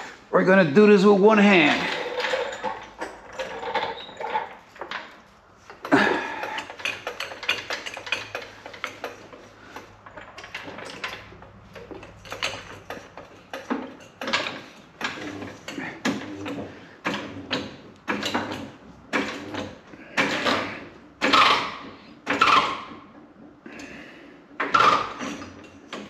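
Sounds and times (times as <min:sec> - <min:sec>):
metal tools clinking: 0:01.5 - 0:15.9.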